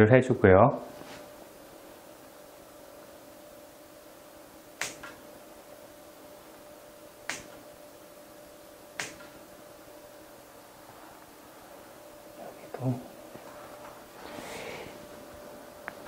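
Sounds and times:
pruning shears snipping stems: 4.8 - 5.2, 7.3 - 7.7, 9.0 - 9.4.

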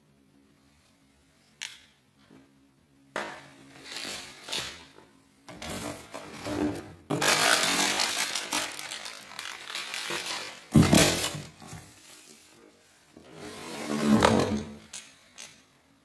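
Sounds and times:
plastic and cardboard packaging rustling: 3.6 - 12.6.

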